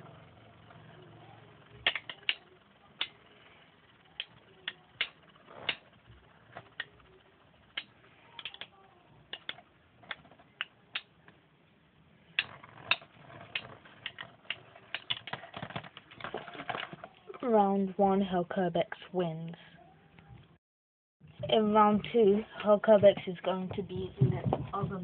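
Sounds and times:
spinning tops clicking together: 1.6s - 8.7s, 12.3s - 15.4s.

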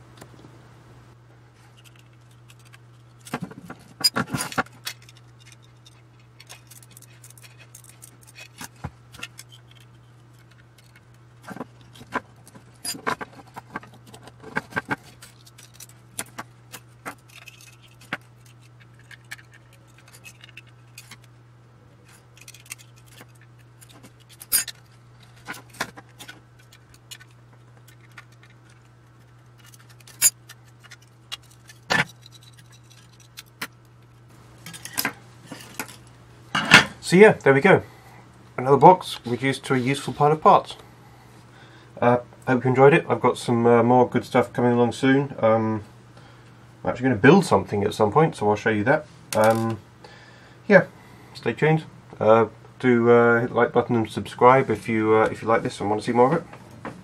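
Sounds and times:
steady low hum: 0.0s - 57.0s
metal parts and tools clinking: 4.0s - 21.3s, 22.0s - 33.7s, 34.6s - 36.9s.

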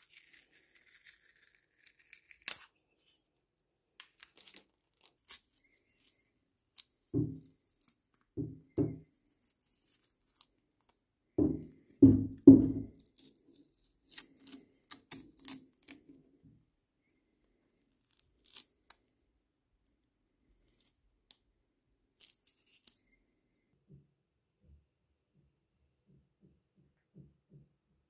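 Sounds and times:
paper rustling: 0.0s - 8.3s
masking paper crinkling and tearing: 0.0s - 8.4s, 9.1s - 11.0s, 12.9s - 16.2s.

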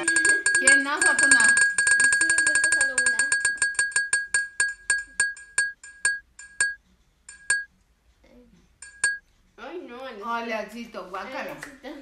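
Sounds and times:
prize wheel ticking: 0.0s - 7.7s, 8.8s - 9.2s.

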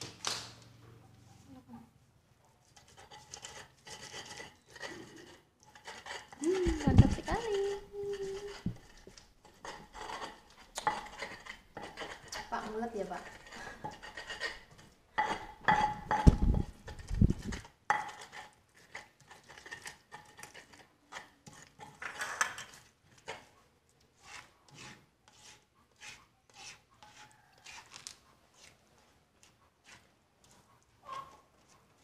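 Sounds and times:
spatula scraping paste: 2.6s - 32.0s
stone pestle grinding in mortar: 2.8s - 23.5s, 24.2s - 28.7s.

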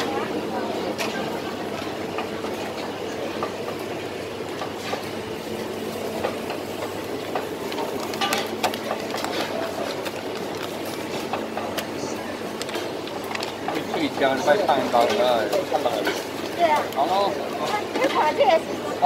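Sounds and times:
busy kitchen din: 0.0s - 19.0s.

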